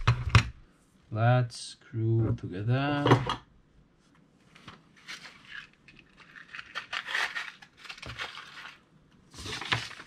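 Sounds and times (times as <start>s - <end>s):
hand rummaging through tools: 5.0s - 10.0s.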